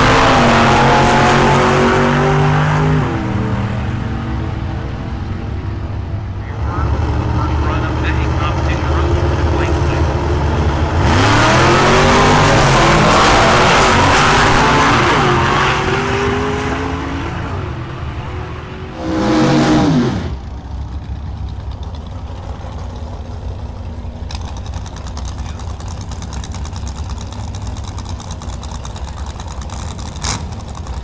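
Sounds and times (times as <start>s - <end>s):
drag race cars passing: 0.0s - 31.0s
drag cars idling: 3.2s - 13.1s, 20.3s - 31.0s.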